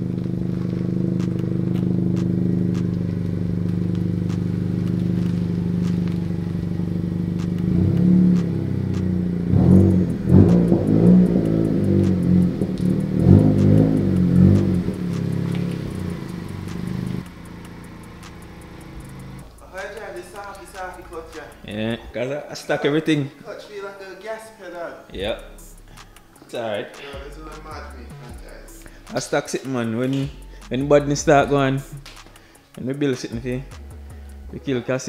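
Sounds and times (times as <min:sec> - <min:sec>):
car engine idling and revving: 0:00.0 - 0:22.0, 0:30.2 - 0:32.4, 0:33.4 - 0:34.6.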